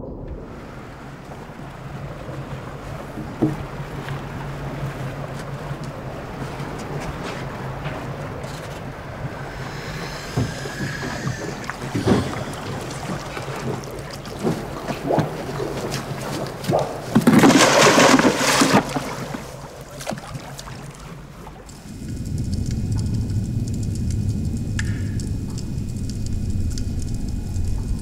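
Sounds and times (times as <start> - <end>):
steady low hum: 0.0 - 28.0
wind: 0.0 - 28.0
loud splash into water: 9.5 - 20.8.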